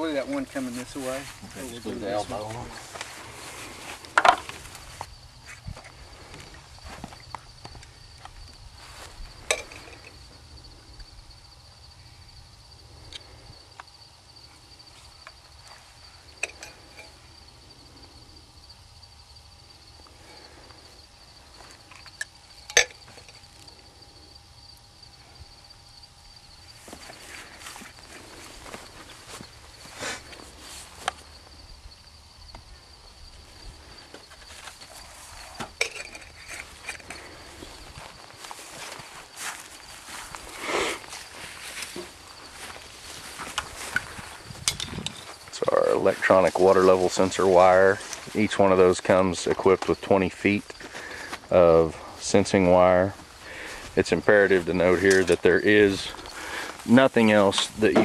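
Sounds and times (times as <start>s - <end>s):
pipe fittings clicking and knocking: 21.9s - 23.4s.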